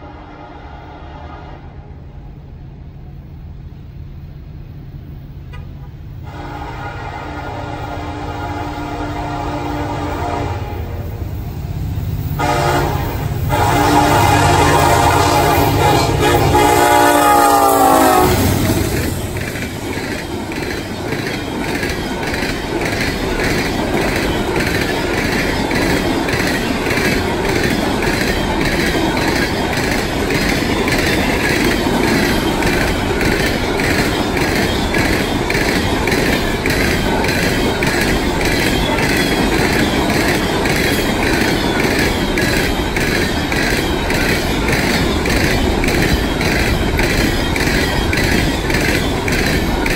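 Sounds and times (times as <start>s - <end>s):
locomotive horn: 0.0s - 2.0s, 6.2s - 11.2s, 12.4s - 18.8s
train rumbling past: 0.0s - 49.9s
wheels clacking over rail joints: 12.4s - 49.9s.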